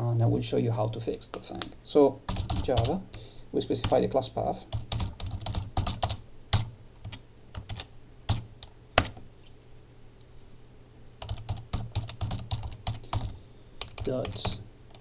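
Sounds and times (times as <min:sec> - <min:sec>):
computer keyboard typing: 0:02.3 - 0:03.1, 0:03.8 - 0:04.1, 0:04.7 - 0:09.2, 0:11.2 - 0:15.0.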